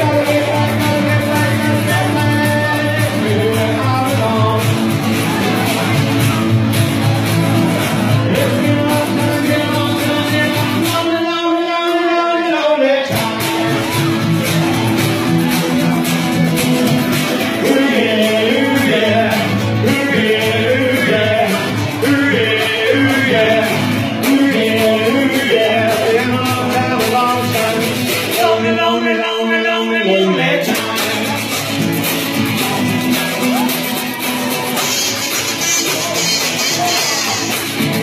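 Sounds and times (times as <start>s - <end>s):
live rock band playing: 0.0s - 12.2s, 13.1s - 29.2s, 29.9s - 38.0s
man singing: 0.0s - 38.0s.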